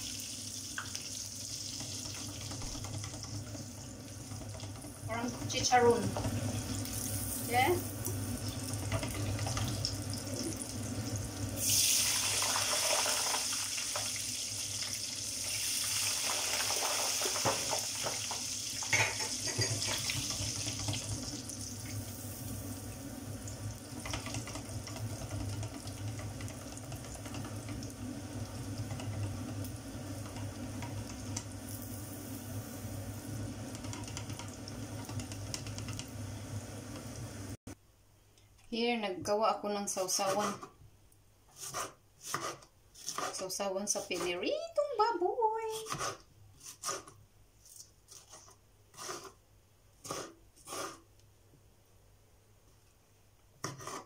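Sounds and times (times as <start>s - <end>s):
pork skin sizzling in oil: 0.0s - 37.6s.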